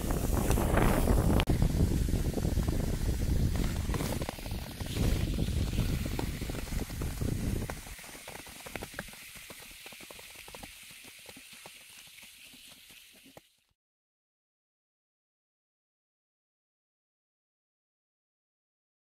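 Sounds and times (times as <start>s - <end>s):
skate blades scraping on ice: 0.0s - 1.5s, 2.2s - 13.6s
wind rumbling on microphone: 0.0s - 8.0s.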